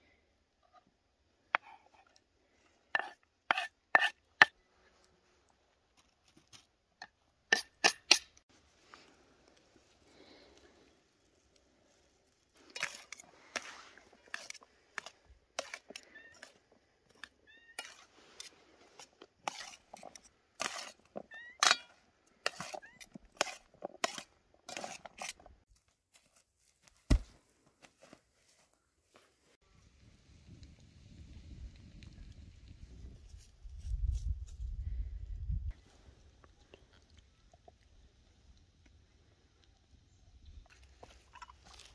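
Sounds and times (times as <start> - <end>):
metal tongs clinking and scraping: 21.6 - 22.8.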